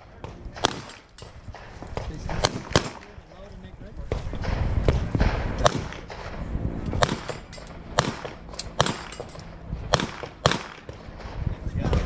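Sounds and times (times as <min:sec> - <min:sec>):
wind rumble on microphone: 0:00.0 - 0:12.0
handgun shots: 0:00.6 - 0:01.3, 0:02.4 - 0:03.1, 0:07.0 - 0:11.0.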